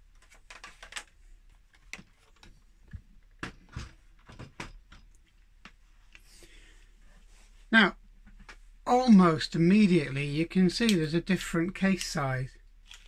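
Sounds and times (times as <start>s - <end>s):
plastic knocks and clicks: 0.2s - 5.8s.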